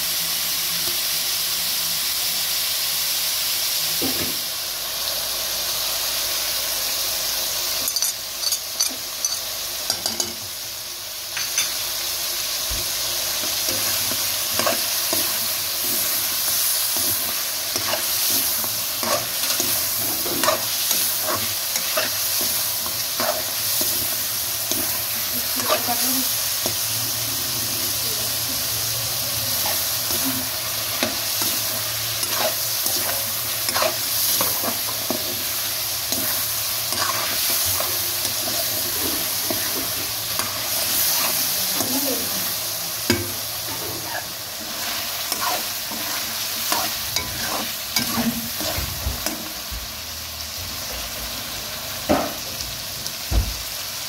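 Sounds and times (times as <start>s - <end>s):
chicken sizzling in hot oil: 0.0s - 54.0s
metal spatula scraping a pan: 29.6s - 35.4s, 36.1s - 42.0s, 43.7s - 48.9s.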